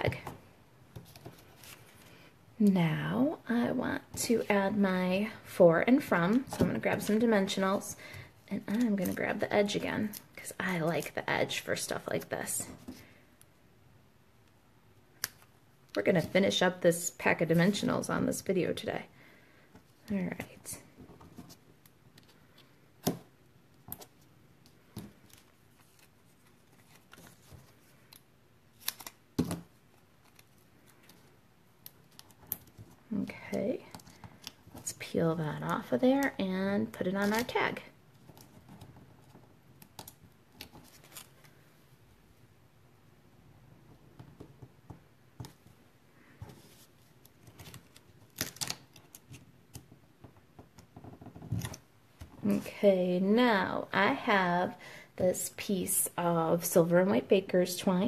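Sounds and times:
paper clicks and snaps: 28.8s - 29.2s.

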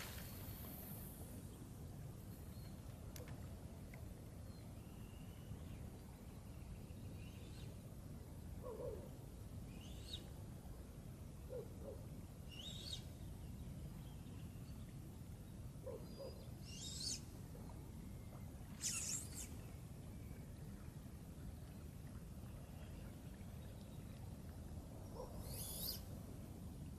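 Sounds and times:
high bird calls: 18.7s - 19.6s.

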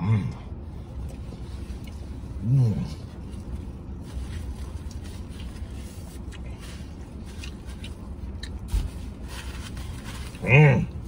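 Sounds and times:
low steady hum: 0.0s - 11.0s
man chewing: 0.3s - 11.0s.

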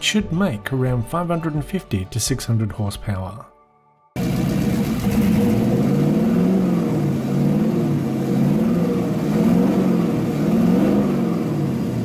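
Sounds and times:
engine revving in blips: 4.2s - 12.0s.

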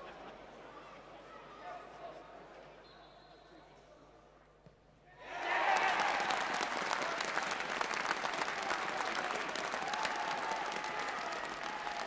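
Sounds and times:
crowd applauding and cheering: 5.3s - 12.0s.

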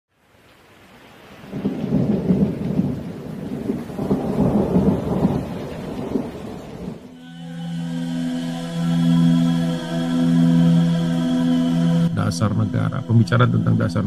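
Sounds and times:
rain: 0.1s - 14.0s
thunder rumbling: 1.4s - 7.1s.

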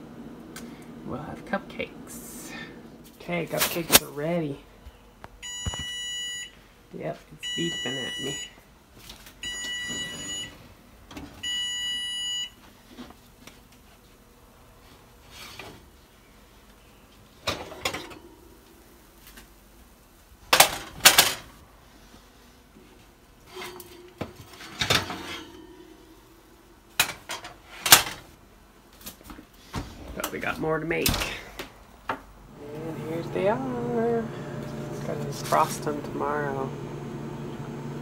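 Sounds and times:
oven timer beeping: 5.4s - 6.6s, 7.4s - 8.6s, 9.4s - 10.6s, 11.4s - 12.6s.

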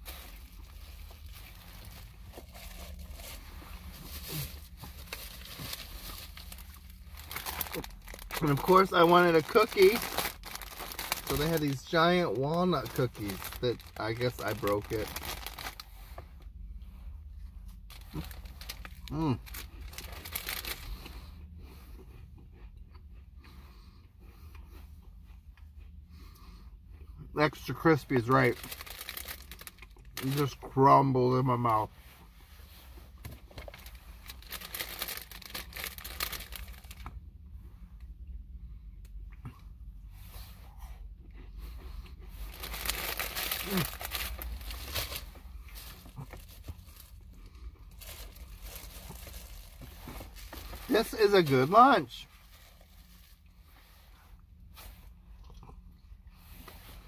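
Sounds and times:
plastic packaging crinkling: 0.0s - 15.9s, 17.9s - 21.0s, 28.2s - 30.6s, 33.5s - 37.1s, 42.4s - 47.2s, 47.9s - 53.4s
crunchy chewing of cookie: 0.0s - 30.7s, 32.2s - 51.5s, 52.2s - 57.0s.

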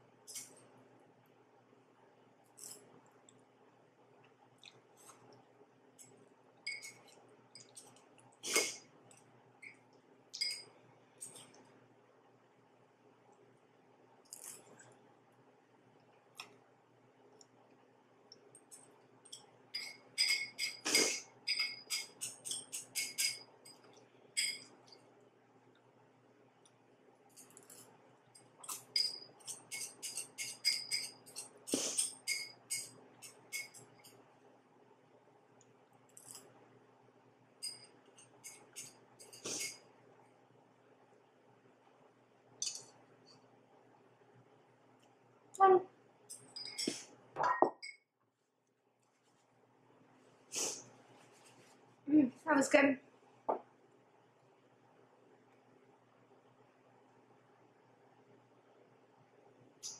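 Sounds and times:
chopsticks clinking against a bowl: 6.7s - 7.9s, 10.4s - 11.6s, 18.7s - 24.7s, 28.4s - 34.2s, 37.6s - 39.8s, 46.3s - 48.0s
ringing clinks: 21.5s - 22.2s
chopsticks scraping ceramic bowl: 28.6s - 34.2s, 37.6s - 39.8s.

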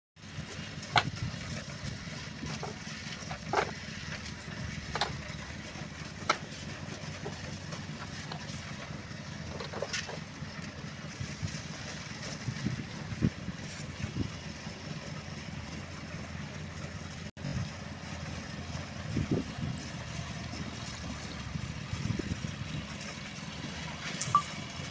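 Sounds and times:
diesel engine running: 0.2s - 24.9s.

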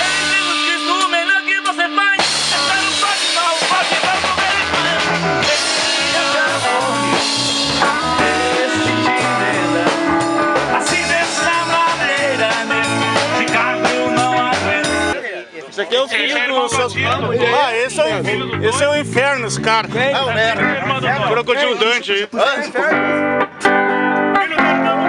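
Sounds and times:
drum kit: 0.0s - 15.2s, 16.7s - 21.5s
electric guitar: 0.0s - 15.2s, 22.8s - 25.0s
man singing into a microphone: 0.0s - 15.2s
low bass line: 2.2s - 15.2s, 16.7s - 21.8s.

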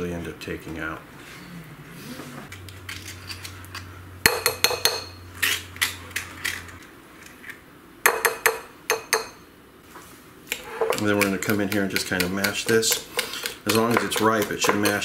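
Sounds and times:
spoon scraping ceramic bowl: 10.5s - 11.6s, 12.2s - 15.0s.

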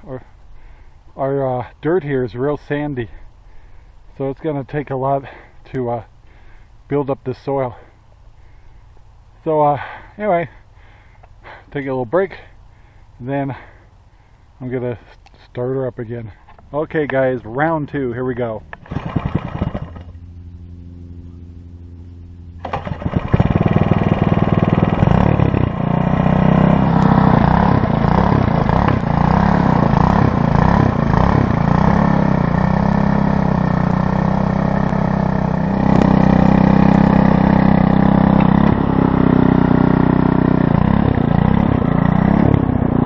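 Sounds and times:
tines churning soil: 18.3s - 20.2s, 22.6s - 43.0s
tiller engine running under load: 18.7s - 21.7s, 22.6s - 43.0s.

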